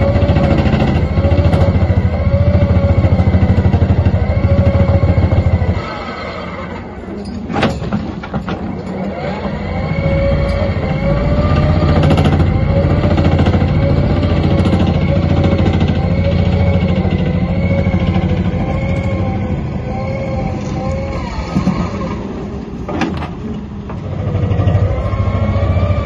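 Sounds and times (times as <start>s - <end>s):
vibrating ripper pounding rock: 0.0s - 5.9s, 11.0s - 18.9s
excavator engine: 0.0s - 26.0s.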